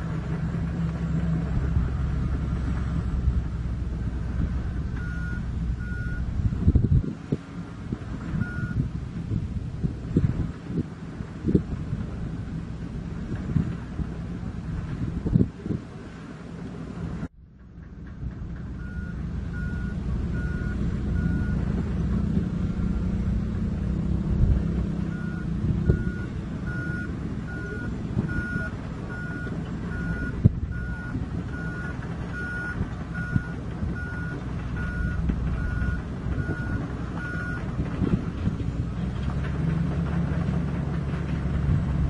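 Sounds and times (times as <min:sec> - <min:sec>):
bulldozer diesel engine running: 0:00.0 - 0:42.0
reverse alarm beeping: 0:05.0 - 0:06.3, 0:18.8 - 0:21.6, 0:25.1 - 0:37.6.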